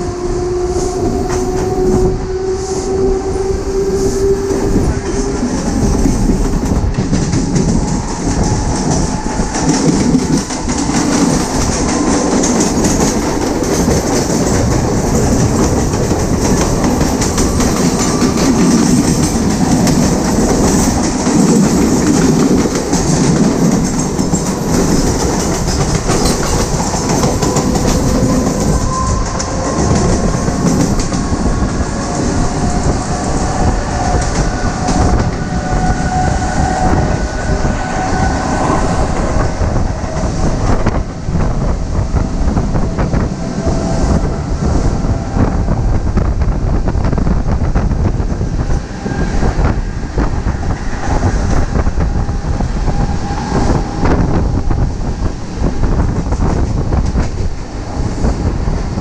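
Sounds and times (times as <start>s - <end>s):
passing train alongside: 0.0s - 59.0s
train wheels clattering over rail joints: 4.6s - 36.8s.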